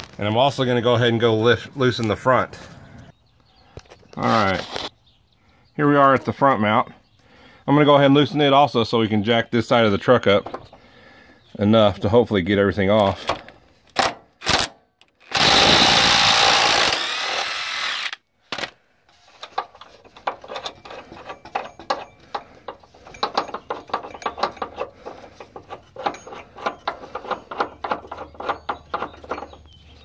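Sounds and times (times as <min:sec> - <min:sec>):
power tool driving a bolt: 0:14.0 - 0:18.8.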